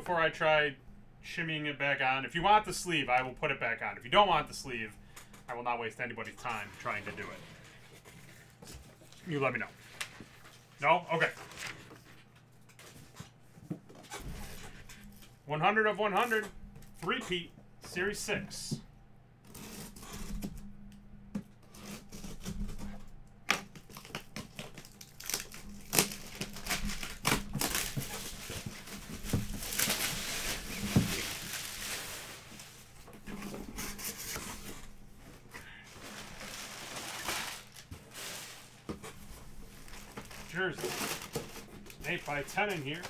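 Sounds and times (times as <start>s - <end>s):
packing tape being cut: 23.5s - 32.2s
plastic wrapping crinkling: 23.6s - 43.0s.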